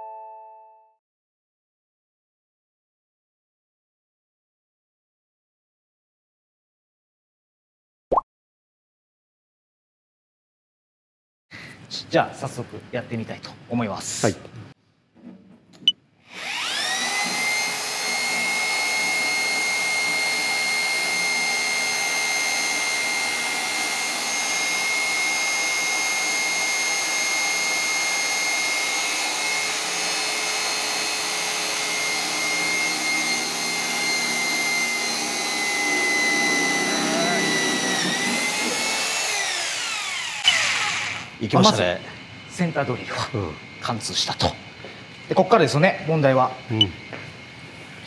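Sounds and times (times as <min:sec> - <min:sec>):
electric drill whining: 0:16.3 - 0:41.5.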